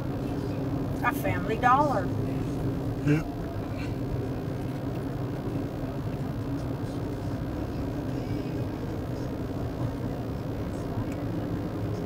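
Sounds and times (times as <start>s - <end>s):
vehicle road noise in cabin: 0.0s - 12.0s.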